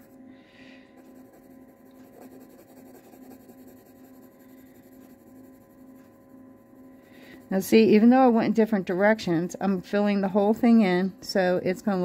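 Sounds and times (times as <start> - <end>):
pencil scratching on paper: 1.0 - 6.2.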